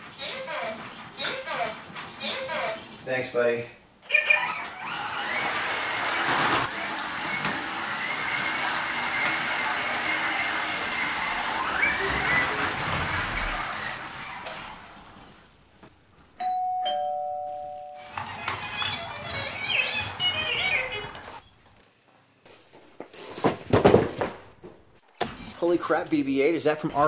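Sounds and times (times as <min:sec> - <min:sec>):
toy robot motor whirring: 0:04.1 - 0:14.6
two-tone doorbell chime: 0:16.4 - 0:18.1.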